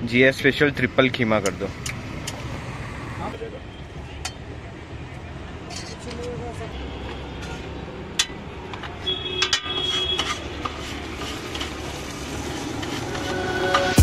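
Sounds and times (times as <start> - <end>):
metal spatula scraping on iron: 9.4 - 14.0.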